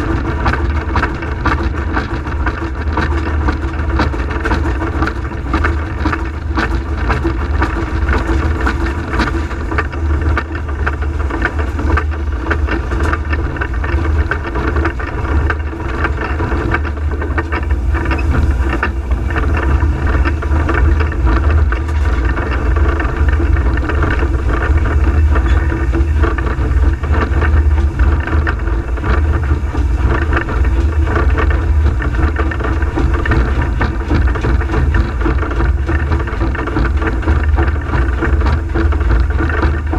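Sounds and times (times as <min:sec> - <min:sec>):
steam locomotive running: 0:00.0 - 0:39.9.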